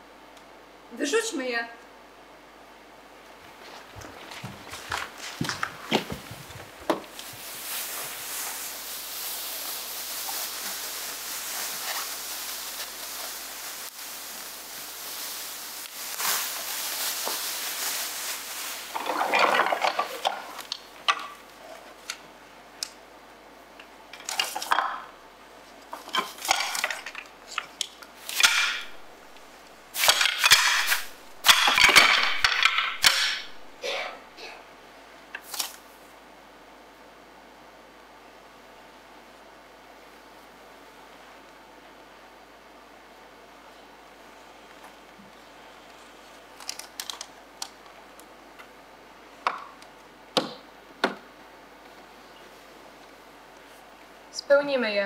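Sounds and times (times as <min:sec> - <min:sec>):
plastic sheeting crinkling: 0:03.5 - 0:22.1, 0:24.2 - 0:33.7.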